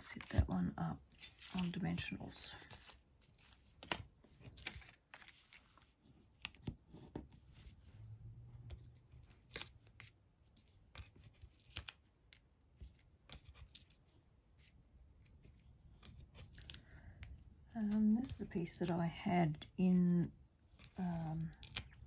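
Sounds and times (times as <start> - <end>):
paper rustling: 1.1 - 7.8.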